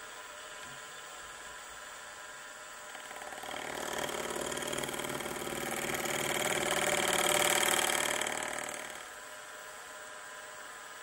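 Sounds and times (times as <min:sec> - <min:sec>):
milling cutter cutting metal: 0:02.9 - 0:09.1.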